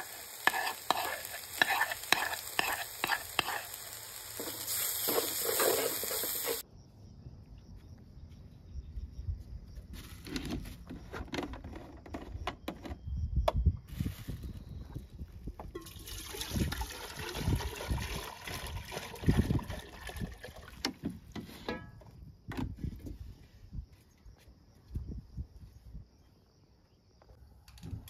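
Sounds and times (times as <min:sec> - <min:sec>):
water pouring into metal pot: 0:15.8 - 0:20.9.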